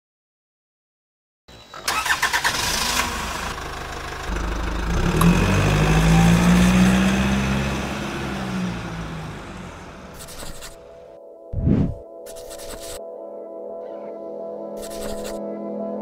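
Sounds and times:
engine cranking and running: 1.8s - 10.8s.

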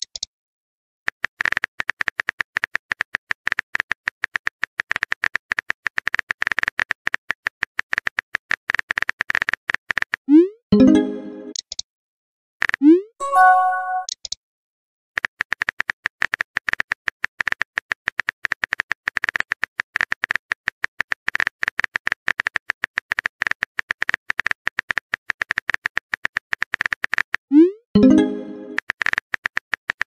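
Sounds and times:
message sent whoosh and chime: 13.2s - 14.1s
rapid keyboard tap clicks: 28.7s - 30.0s.

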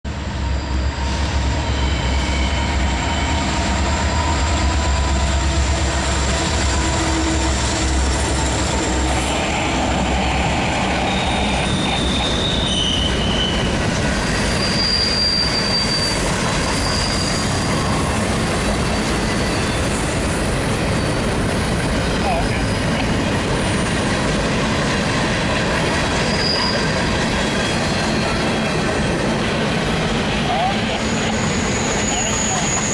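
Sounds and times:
high wheel squeals: 0.3s - 5.4s, 6.8s - 21.6s, 22.3s - 23.1s, 26.0s - 29.0s, 30.4s - 32.9s
train wheels clattering on rail: 3.0s - 32.9s.

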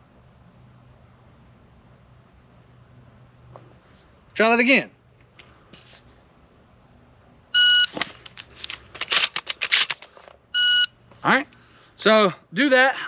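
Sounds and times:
shot timer beep: 7.6s - 7.9s, 10.6s - 10.9s
shotgun shells clicking and rattling: 8.0s - 10.4s.

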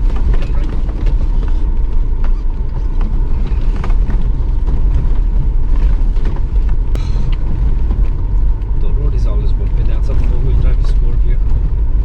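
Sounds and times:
knocks and rattles: 0.0s - 8.8s
car driving on rough gravel: 0.0s - 12.0s.

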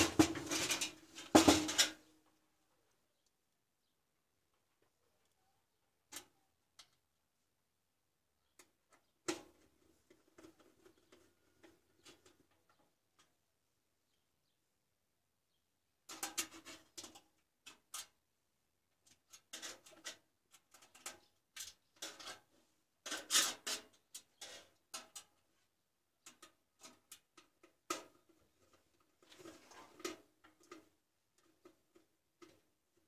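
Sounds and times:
small metallic clicks and scrapes: 6.0s - 7.2s, 8.4s - 13.4s, 16.0s - 18.3s, 18.9s - 33.0s.

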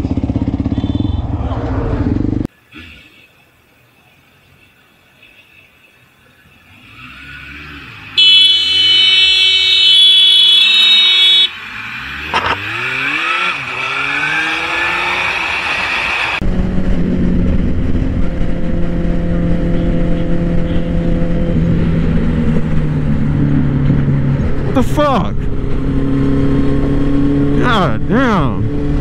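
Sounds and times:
sport bike running at speed: 0.0s - 2.5s, 6.3s - 29.0s
motorcycle engine revving: 0.0s - 3.3s, 6.6s - 29.0s
loud horn blast: 8.2s - 11.5s.

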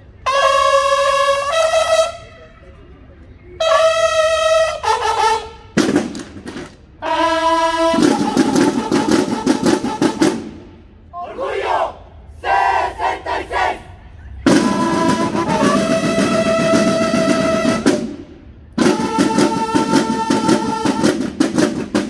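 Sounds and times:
bugle calls: 0.2s - 2.7s, 3.6s - 5.8s, 7.0s - 10.3s, 11.2s - 17.9s, 18.8s - 21.2s
drums playing rapid strokes: 7.8s - 10.6s, 14.5s - 22.0s.

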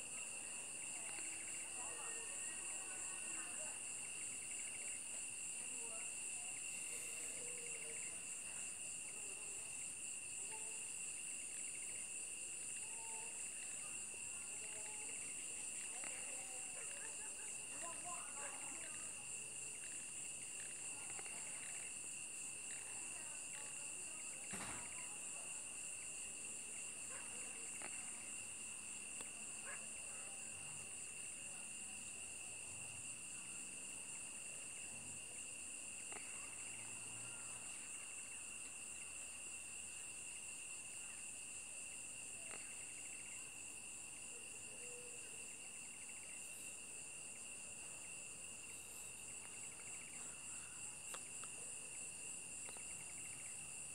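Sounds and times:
insects trilling: 0.0s - 53.9s
faint clicks: 52.6s - 53.0s.

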